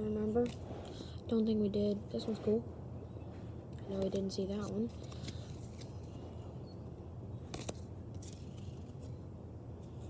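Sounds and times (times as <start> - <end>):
low steady hum: 0.0 - 10.0
cards sliding and snapping: 4.6 - 6.2, 7.5 - 9.1.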